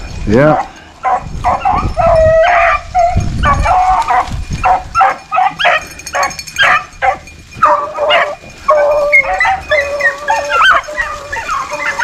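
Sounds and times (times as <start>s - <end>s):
hounds baying: 0.4s - 12.0s.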